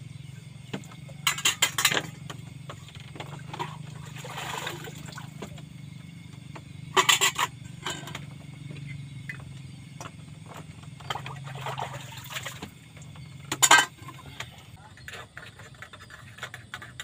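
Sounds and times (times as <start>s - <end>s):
steady low hum: 0.0s - 17.0s
metal pots clattering: 0.9s - 5.5s, 6.8s - 8.4s, 10.6s - 17.0s
pan scraping: 1.0s - 5.0s, 6.9s - 8.2s, 13.5s - 17.0s.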